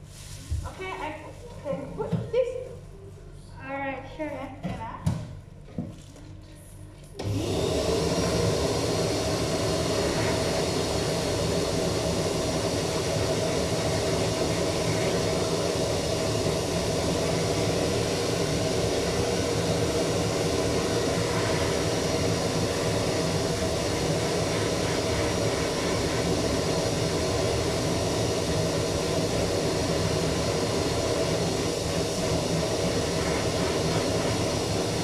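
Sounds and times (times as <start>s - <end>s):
air hose machine whooshing: 7.2s - 35.0s.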